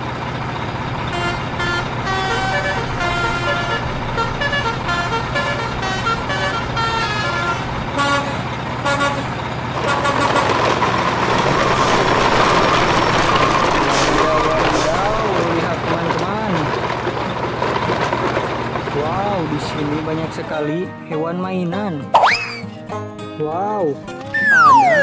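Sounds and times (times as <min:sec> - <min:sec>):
multi-tone truck horn: 0:01.1 - 0:10.8
hissing engine noise: 0:09.4 - 0:15.4.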